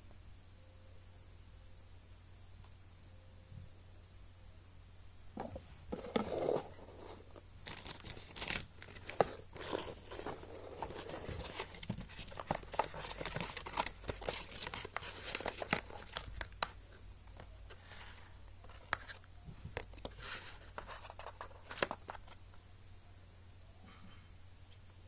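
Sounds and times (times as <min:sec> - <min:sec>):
packaging rustling and crinkling: 0:05.9 - 0:22.4.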